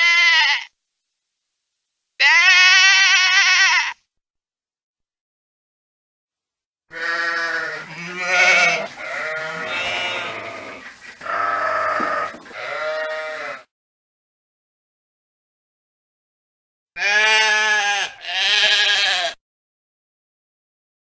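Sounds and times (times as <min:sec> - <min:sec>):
sheep bleating: 0:00.0 - 0:00.8, 0:02.2 - 0:04.0, 0:06.9 - 0:13.7, 0:17.0 - 0:19.4.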